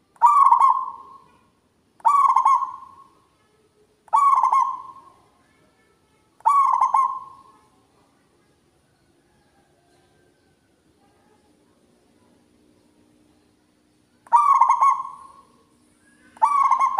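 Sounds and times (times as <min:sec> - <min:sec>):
dove cooing song: 0:00.2 - 0:03.2, 0:04.1 - 0:05.2, 0:06.4 - 0:07.5, 0:14.2 - 0:16.9.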